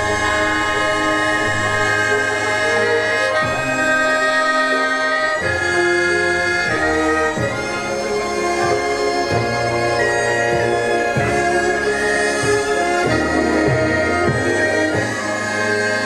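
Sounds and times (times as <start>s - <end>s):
orchestra of reed winds and strings: 0.0s - 16.0s.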